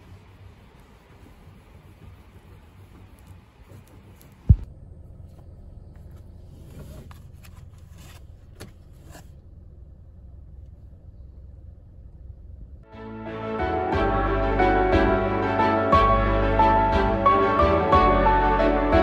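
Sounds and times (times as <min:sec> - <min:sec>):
rustling: 0:00.0 - 0:09.5
car rumble from inside cabin: 0:04.3 - 0:12.9.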